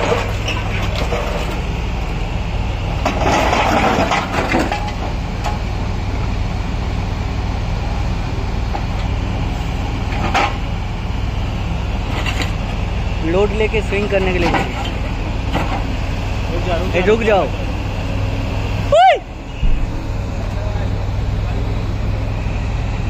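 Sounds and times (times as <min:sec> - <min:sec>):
scraping and crunching rubble: 0:00.0 - 0:02.1, 0:03.0 - 0:05.7, 0:12.0 - 0:12.8, 0:13.8 - 0:15.9
excavator diesel engine running: 0:00.0 - 0:23.0.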